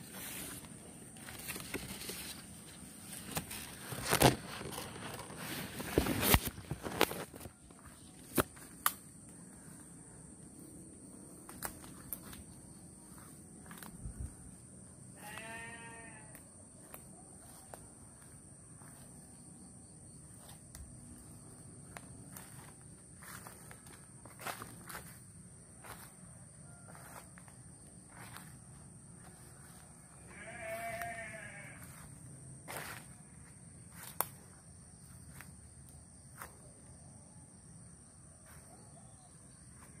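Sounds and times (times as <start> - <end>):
footsteps crunching through dry leaves: 0.0 - 8.8, 30.3 - 32.1
goat bleating: 15.2 - 16.3, 30.3 - 31.8.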